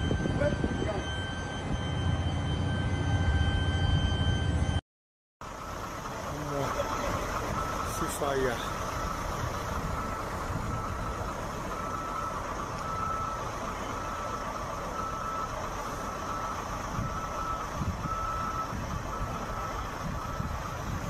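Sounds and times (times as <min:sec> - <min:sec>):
electronic beeper tone: 0:00.0 - 0:04.8.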